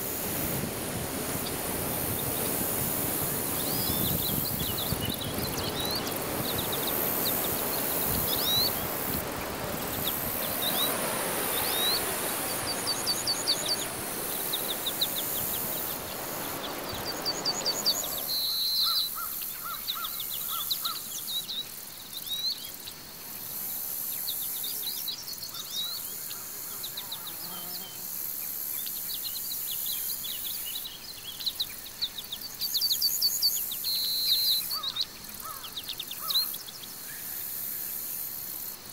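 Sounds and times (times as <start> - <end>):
steady high hiss: 0.0 - 38.9
small birds chirping: 1.3 - 22.8.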